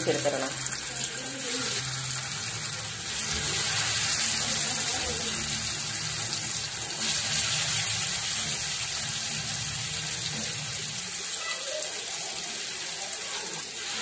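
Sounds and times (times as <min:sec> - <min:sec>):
fish sizzling in hot oil: 0:00.0 - 0:14.0.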